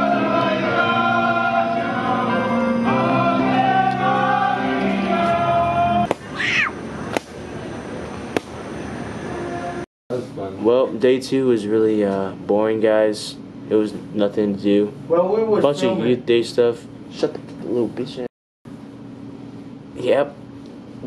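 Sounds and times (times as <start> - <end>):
choir-style singing: 0.0 - 6.2, 9.2 - 9.8.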